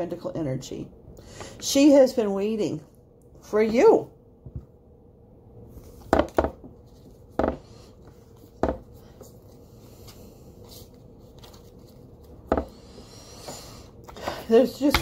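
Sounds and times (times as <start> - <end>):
cards being shuffled: 8.0 - 12.5.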